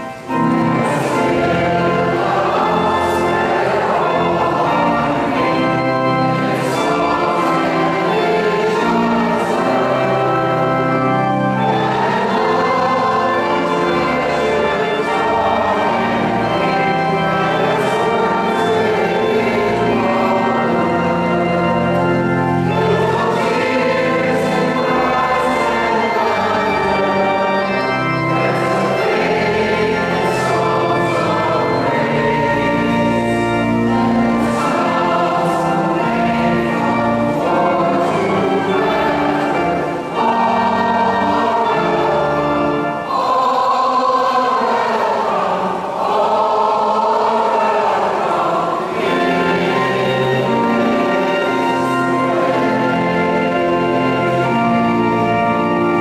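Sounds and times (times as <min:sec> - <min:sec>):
choir singing a hymn: 0:00.0 - 0:56.0
organ accompaniment: 0:00.0 - 0:56.0.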